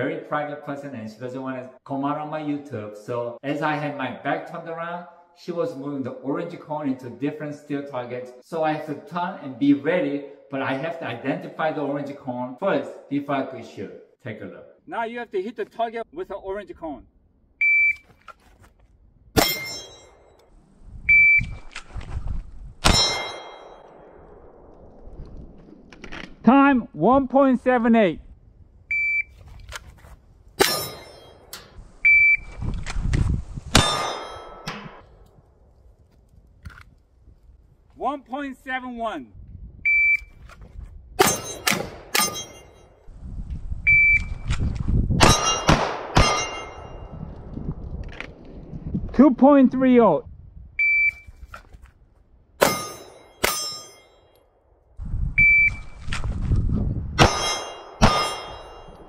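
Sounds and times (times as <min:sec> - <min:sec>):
shot timer beep: 0:17.6 - 0:18.0, 0:28.9 - 0:29.3, 0:39.9 - 0:40.3, 0:43.9 - 0:44.3, 0:50.8 - 0:51.3, 0:55.4 - 0:55.9
pistol shot ringing steel: 0:19.4 - 0:20.2, 0:22.8 - 0:24.1, 0:30.6 - 0:31.7, 0:33.8 - 0:35.0, 0:41.2 - 0:42.8, 0:45.2 - 0:47.1, 0:52.6 - 0:54.2, 0:57.2 - 0:59.0.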